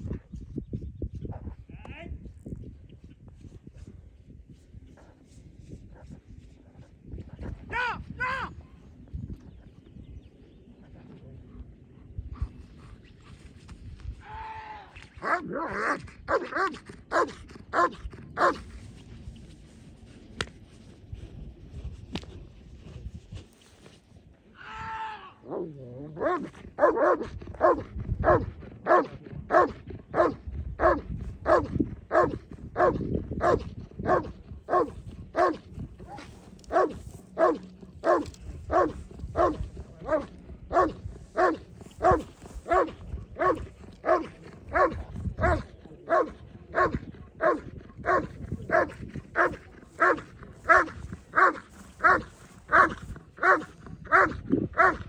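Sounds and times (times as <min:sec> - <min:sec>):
dog barking: 0:15.2 - 0:18.6, 0:26.2 - 0:55.0.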